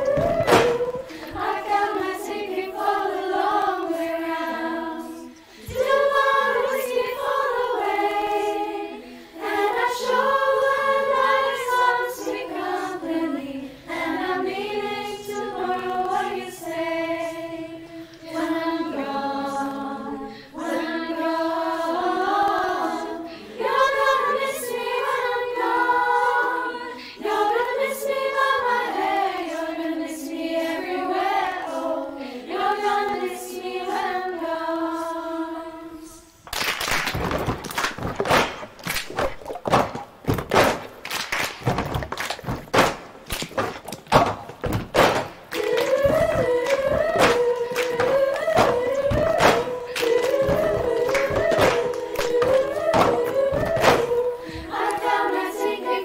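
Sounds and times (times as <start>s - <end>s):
girls' choir singing in harmony: 0.0s - 36.4s, 40.7s - 56.0s.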